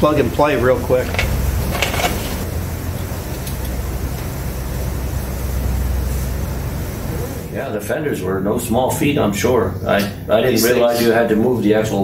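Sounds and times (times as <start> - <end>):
low machine hum: 0.0 - 11.5.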